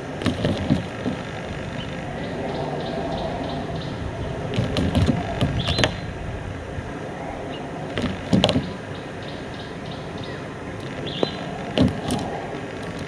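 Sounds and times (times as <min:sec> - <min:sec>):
bird bill knocking on windscreen: 0:00.2 - 0:01.3, 0:04.5 - 0:06.0, 0:08.0 - 0:08.8, 0:11.2 - 0:13.0.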